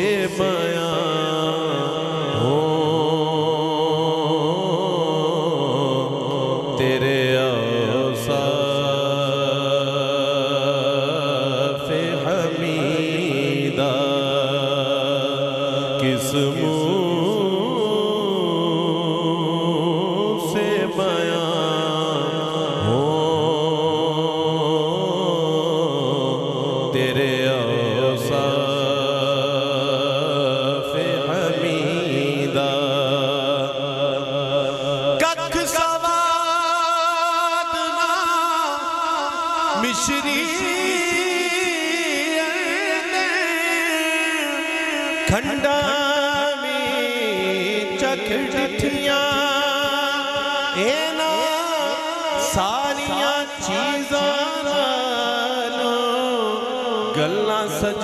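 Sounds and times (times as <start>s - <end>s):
man singing into a microphone: 0.0s - 58.0s.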